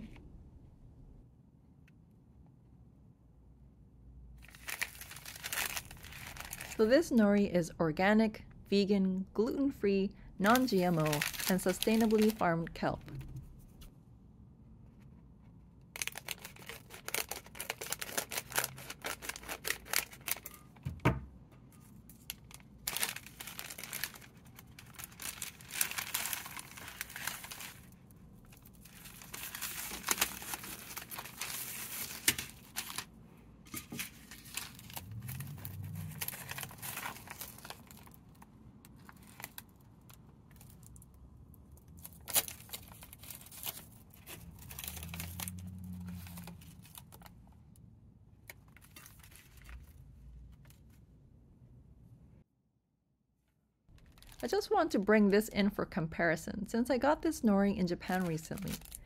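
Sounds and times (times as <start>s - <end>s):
dried seaweed sheets crackling: 4.4s - 6.8s, 10.5s - 12.5s, 15.9s - 20.6s, 21.9s - 33.1s, 34.0s - 41.1s, 58.1s - 59.0s
plastic package crinkling: 4.4s - 6.8s, 10.4s - 12.5s, 16.0s - 20.8s, 21.8s - 33.1s, 33.7s - 41.1s, 41.9s - 47.4s, 48.5s - 50.9s, 53.9s - 54.7s, 58.0s - 59.0s.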